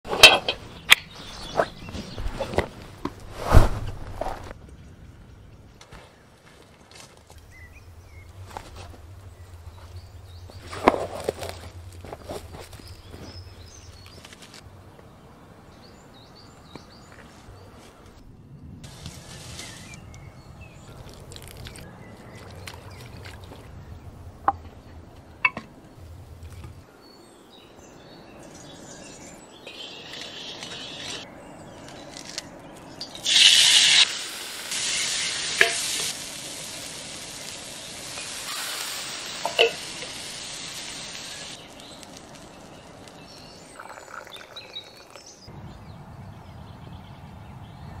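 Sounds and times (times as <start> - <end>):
food sizzling: 29.7 - 31.2, 33.0 - 45.2.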